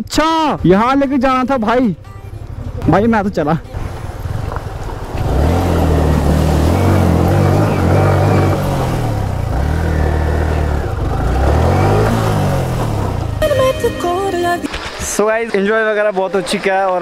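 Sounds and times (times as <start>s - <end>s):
motorcycle engine at low revs: 3.8s - 13.4s.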